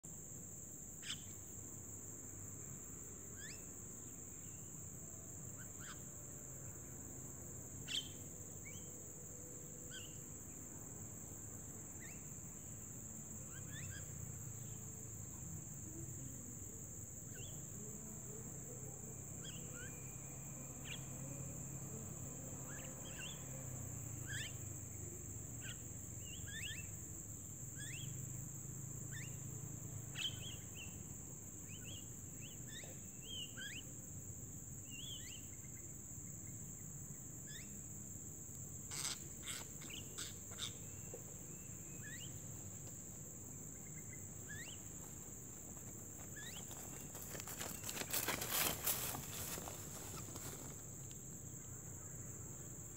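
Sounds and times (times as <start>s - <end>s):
high-pitched insect drone: 17.3s - 33.9s, 38.8s - 51.2s
mynas chirping: 43.7s - 45.0s.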